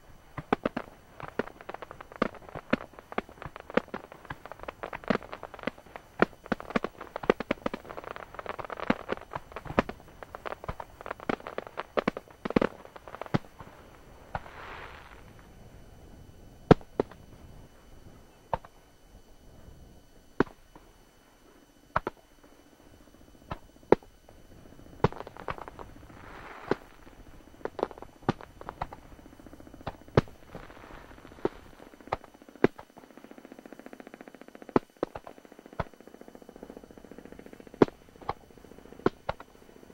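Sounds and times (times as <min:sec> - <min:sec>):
firework shells bursting: 0:00.3 - 0:15.4, 0:25.0 - 0:33.4.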